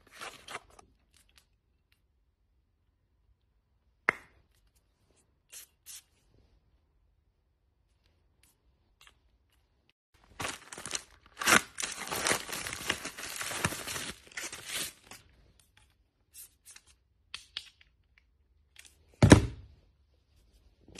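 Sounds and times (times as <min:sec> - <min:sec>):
mailer tearing and crinkling: 0:10.2 - 0:15.1.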